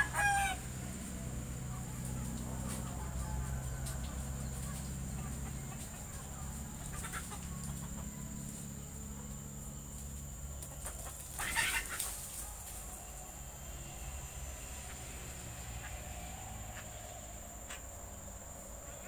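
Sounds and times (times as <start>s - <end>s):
chickens clucking: 0.0s - 19.0s
low steady hum: 0.0s - 19.0s
loud harsh bird call: 11.4s - 12.2s.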